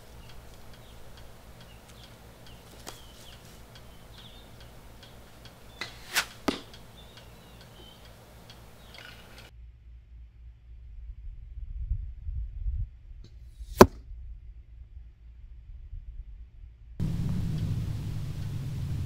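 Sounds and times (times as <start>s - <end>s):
faint snap: 0.0s - 9.5s
arrow sharp impacts: 0.2s - 9.5s, 13.6s - 14.0s.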